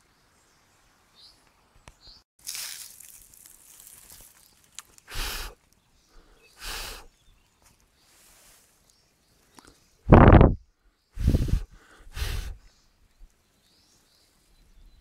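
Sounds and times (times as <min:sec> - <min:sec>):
air puffs across microphone: 0:11.2 - 0:12.6.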